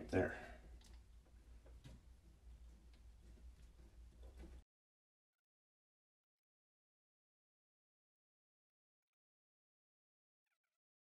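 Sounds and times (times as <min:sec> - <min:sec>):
faint low room hum: 0:00.0 - 0:04.6
faint small clicks: 0:00.7 - 0:02.1.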